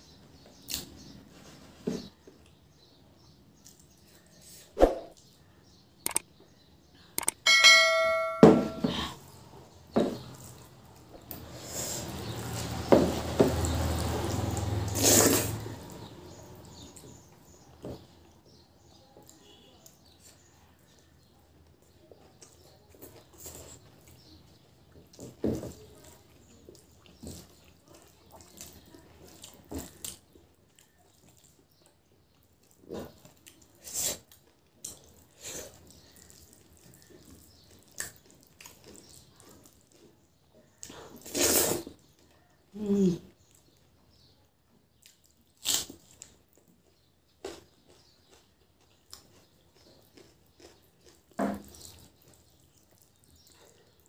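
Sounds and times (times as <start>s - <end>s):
sharp clinks on metal plate: 7.2s - 9.1s
person chewing and lip smacking: 25.9s - 40.1s, 45.0s - 54.0s.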